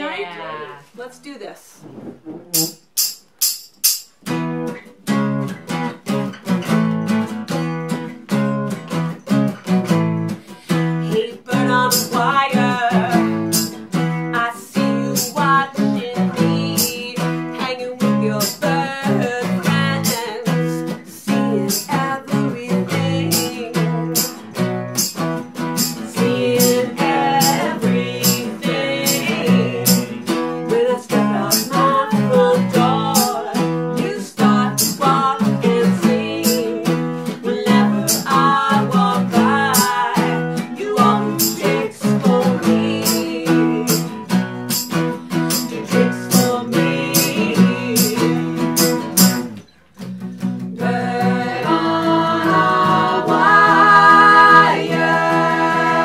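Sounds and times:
percussion beat: 1.8s - 4.8s, 11.7s - 14.0s, 15.1s - 15.6s, 18.3s - 20.6s, 21.4s - 22.2s, 22.9s - 56.0s
acoustic guitars strummed: 1.8s - 56.0s
women singing: 11.0s - 13.6s, 14.3s - 24.3s, 26.0s - 44.3s, 45.6s - 48.6s, 50.8s - 56.0s.

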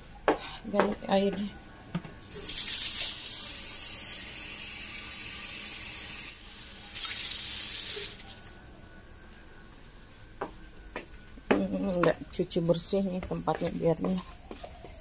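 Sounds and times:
tap water running into container: 2.4s - 3.4s, 6.9s - 8.5s
water splashing into metal basin: 7.0s - 8.5s.

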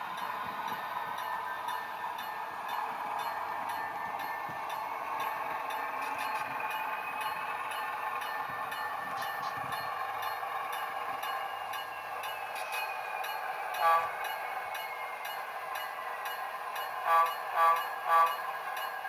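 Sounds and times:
loud horn toot: 13.8s - 14.1s, 17.1s - 18.4s.

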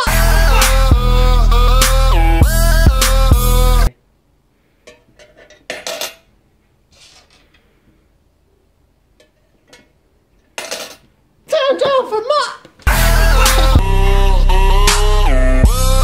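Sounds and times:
loud hip-hop dance music: 0.0s - 3.9s, 12.9s - 16.0s.

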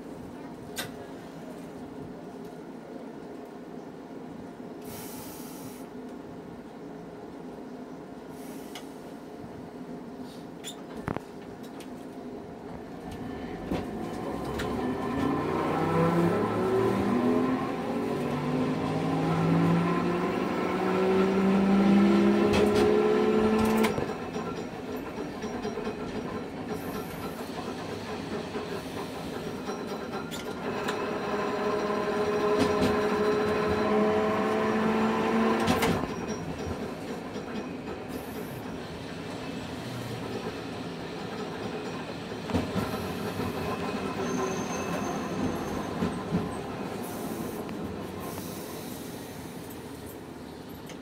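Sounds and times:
tram motor whine: 11.0s - 51.0s.

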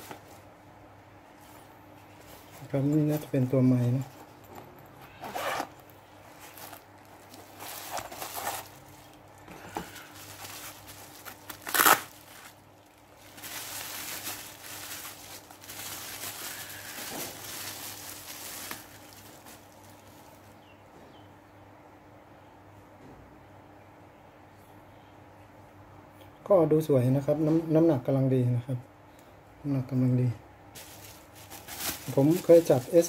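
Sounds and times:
bubble wrap crinkling: 0.0s - 0.5s, 5.1s - 20.6s, 30.8s - 33.0s
packaging rustling: 5.1s - 20.6s, 30.8s - 33.0s
sharp crackle of packaging: 6.3s - 20.6s, 30.8s - 33.0s.

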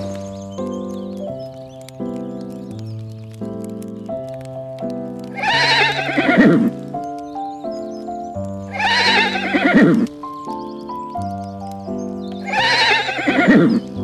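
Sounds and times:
background music: 0.0s - 14.0s
horse neighing: 5.4s - 6.7s, 8.7s - 10.0s, 12.4s - 13.8s.

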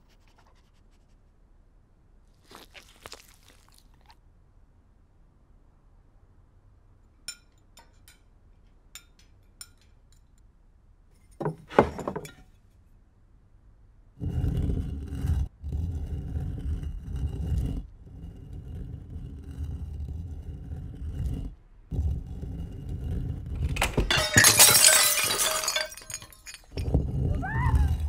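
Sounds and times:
low rumbling: 14.0s - 28.0s
glass shattering: 23.7s - 26.9s.

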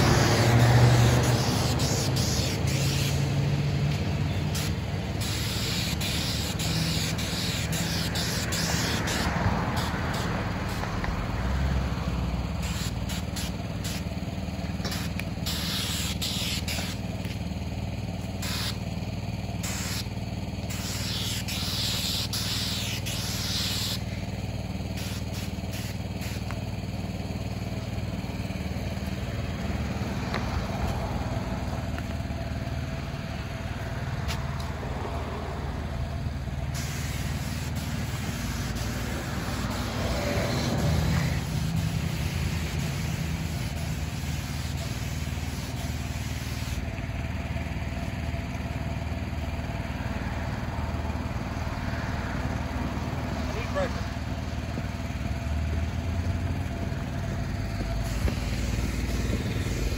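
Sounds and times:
spray wand hissing: 0.0s - 11.6s, 12.3s - 32.2s, 36.6s - 46.9s, 57.7s - 59.9s
engine humming: 0.0s - 59.9s.

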